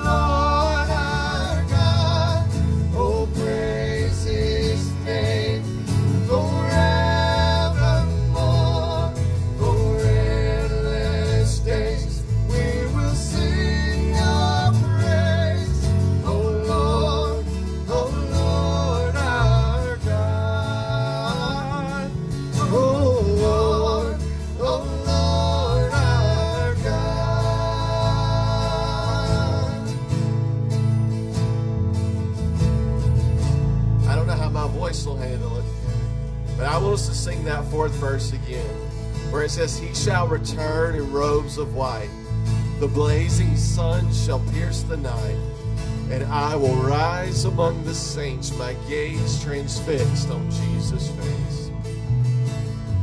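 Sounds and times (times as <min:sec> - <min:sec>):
people singing: 0:00.0 - 0:30.4, 0:46.1 - 0:51.7
bass line: 0:00.0 - 0:53.0
strummed acoustic guitars: 0:00.0 - 0:53.0.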